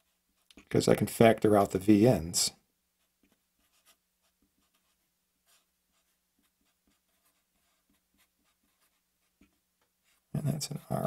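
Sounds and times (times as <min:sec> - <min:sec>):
marker scratching on paper: 0:00.0 - 0:00.7, 0:03.0 - 0:11.0.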